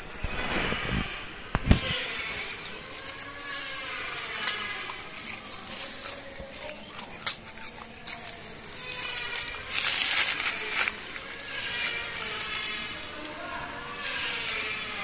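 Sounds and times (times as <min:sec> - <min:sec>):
rustling hiss: 0:00.0 - 0:06.7
small clicks: 0:01.5 - 0:15.0.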